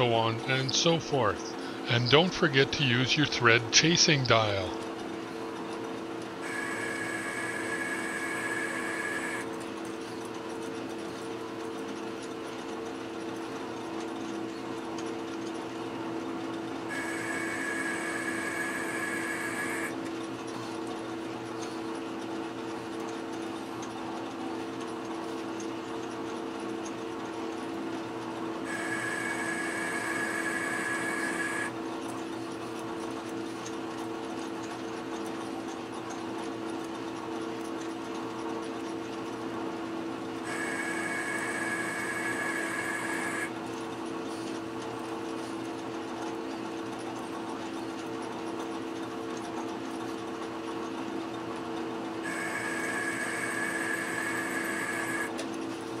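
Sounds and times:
high cutting whine: 0.0s - 4.8s, 6.4s - 9.6s, 16.9s - 20.0s, 28.6s - 31.8s, 40.4s - 43.6s, 52.2s - 55.4s
metal lathe running: 0.0s - 4.8s, 6.4s - 9.9s, 16.7s - 20.1s, 28.6s - 31.8s, 40.4s - 43.7s, 52.2s - 55.4s.

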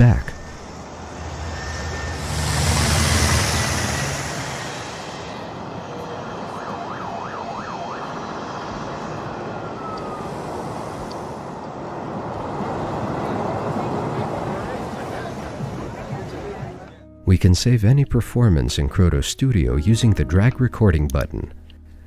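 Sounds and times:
helicopter passing: 0.0s - 16.9s
traffic noise: 0.0s - 17.0s
police siren: 0.4s - 16.8s.

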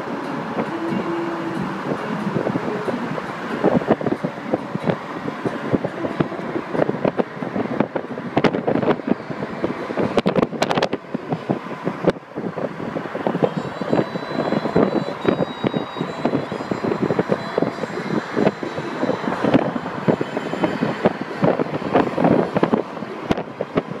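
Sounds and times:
car road noise: 0.0s - 24.0s
wind buffeting microphone: 0.0s - 24.0s.

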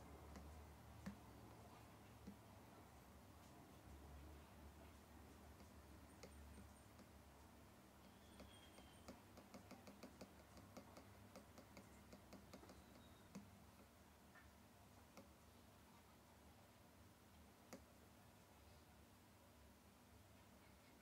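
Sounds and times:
stylus tapping on glass screen: 8.0s - 13.9s.

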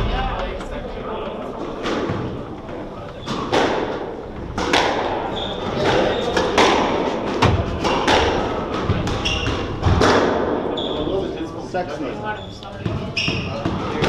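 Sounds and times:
shoes squeaking on wooden floor: 5.2s - 6.6s, 8.9s - 9.9s, 12.2s - 14.0s
squash ball smacks: 6.4s - 10.5s.

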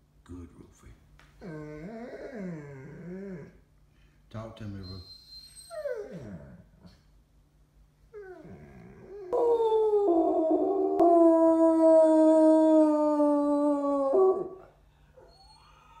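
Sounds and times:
dog whining: 1.4s - 3.6s, 4.8s - 7.0s, 8.1s - 16.0s
dog howling: 5.5s - 6.6s, 8.2s - 16.0s.

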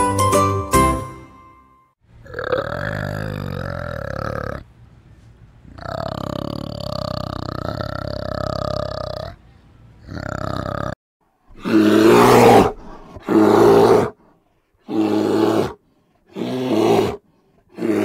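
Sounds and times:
bear roaring: 2.2s - 4.6s, 10.0s - 14.2s, 14.8s - 18.0s
steady pitched animal sound: 2.2s - 4.7s, 5.7s - 18.0s.

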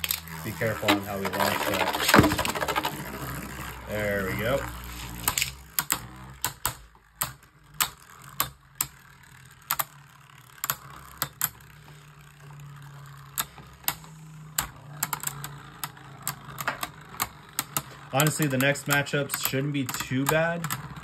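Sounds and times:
spinning tops clashing: 0.0s - 5.6s
sharp plastic clicks: 5.2s - 9.0s, 13.3s - 21.0s.

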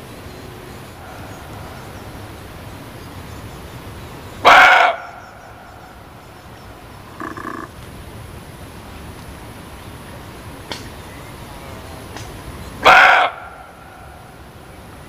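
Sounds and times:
background hiss: 0.0s - 15.0s
deer barking: 4.4s - 5.2s, 7.1s - 7.7s, 12.8s - 13.8s.

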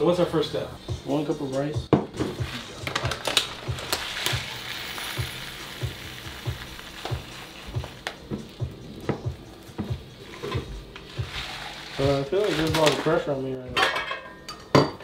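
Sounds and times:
plastic bag crinkling: 2.3s - 8.2s, 10.9s - 13.3s
rice pouring into glass cup: 2.4s - 8.2s, 10.2s - 13.2s.

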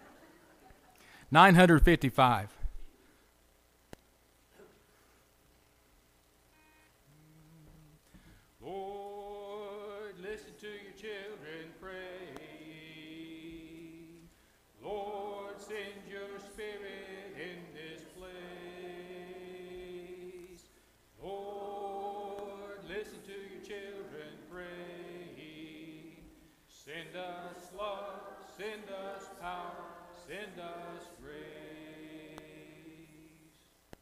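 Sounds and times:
congregation singing a hymn: 8.6s - 33.7s.

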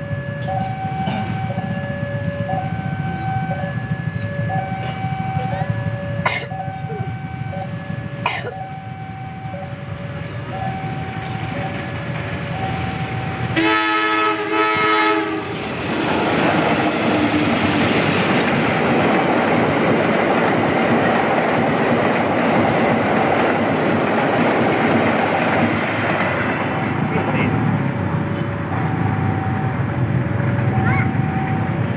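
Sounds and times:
diesel locomotive horn: 0.0s - 11.9s, 13.4s - 18.1s
level crossing alarm two-tone chime: 0.0s - 13.6s, 28.8s - 30.0s, 30.6s - 31.9s
train passing with engine and wheels: 0.0s - 31.9s.

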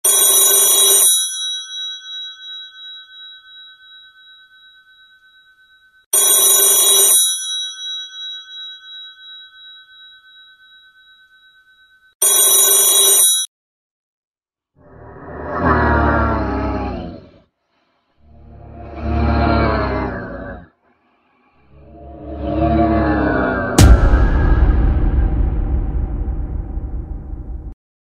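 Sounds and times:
phone ringtone: 0.0s - 13.5s.

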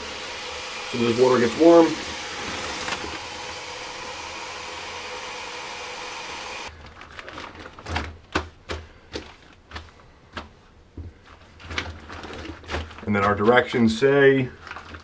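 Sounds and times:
tap water running: 0.0s - 6.7s
water sloshing in a bag: 6.7s - 10.0s, 11.4s - 13.7s, 14.5s - 15.0s.

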